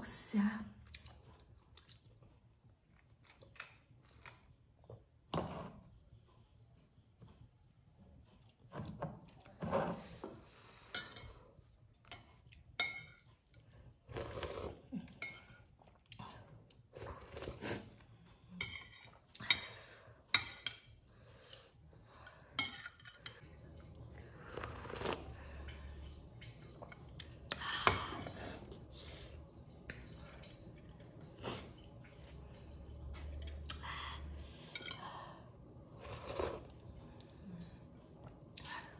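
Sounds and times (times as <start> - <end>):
chewing: 0.8 - 4.5.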